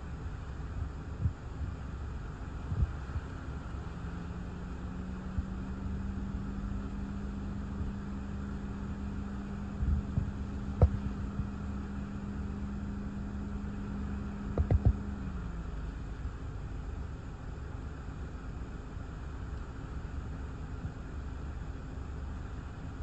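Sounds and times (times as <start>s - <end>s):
steady low hum: 0.0s - 23.0s
soft thumps: 9.8s - 11.2s.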